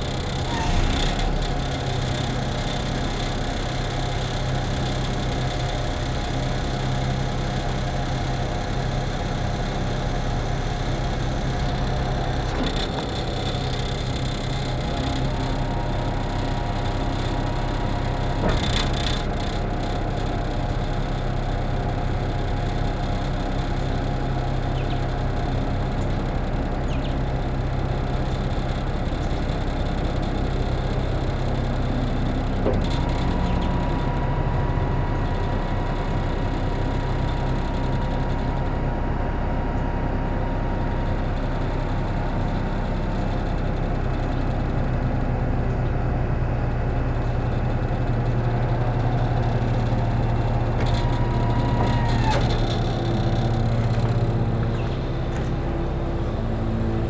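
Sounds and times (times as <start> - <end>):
truck engine running: 0.0 - 57.0.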